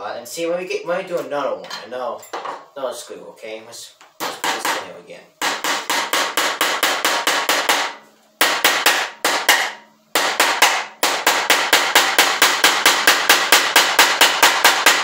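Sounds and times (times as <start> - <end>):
hammer striking screw into wood: 5.4 - 15.0.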